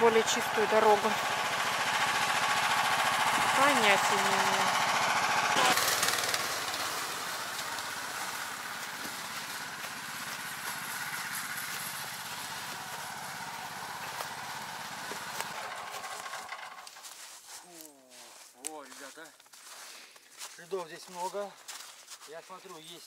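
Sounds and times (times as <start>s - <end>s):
small petrol engine under load: 0.0s - 17.4s.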